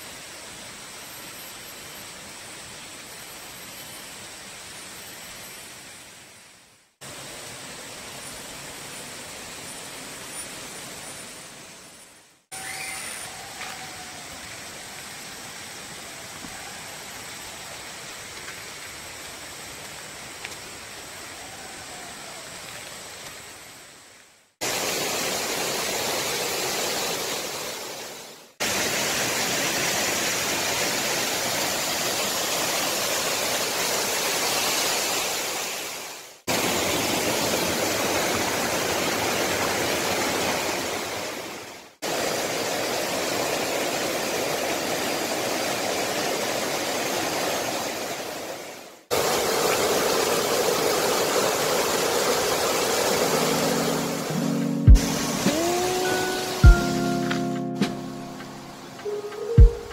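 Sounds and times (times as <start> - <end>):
waterfall roaring: 24.6 - 59.9.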